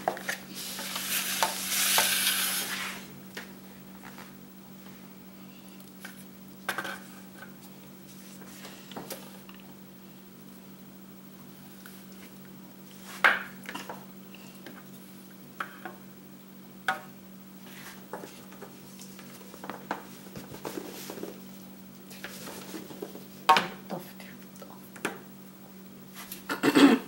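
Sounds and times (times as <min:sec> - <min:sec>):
steady low hum: 0:00.0 - 0:27.0
spatula scraping saucepan: 0:00.5 - 0:03.1.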